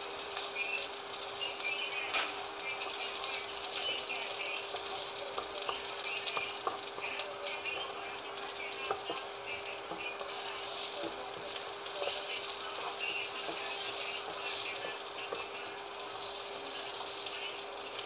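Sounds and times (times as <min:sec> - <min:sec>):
faint steady hum: 0:00.0 - 0:18.0
onion sizzling in hot oil: 0:00.0 - 0:18.0
spatula scraping and tapping pan: 0:02.1 - 0:17.3.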